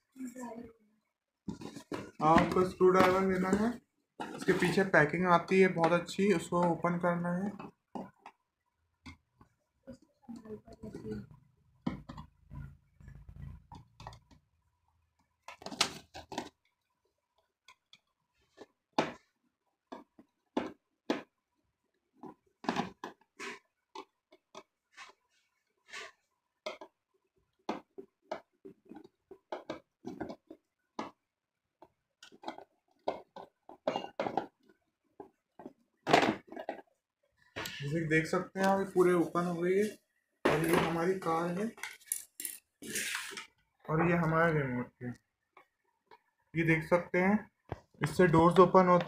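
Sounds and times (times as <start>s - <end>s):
plastic fasteners clicking and scraping: 11.8s - 37.8s.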